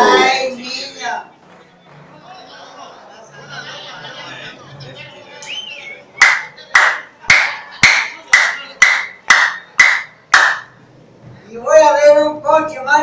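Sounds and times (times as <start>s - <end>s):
hands clapping: 6.2s - 10.7s.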